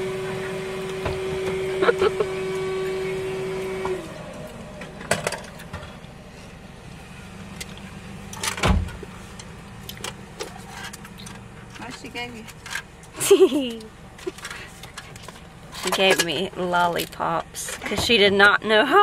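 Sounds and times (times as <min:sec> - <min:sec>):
motor whine: 0:00.0 - 0:08.8.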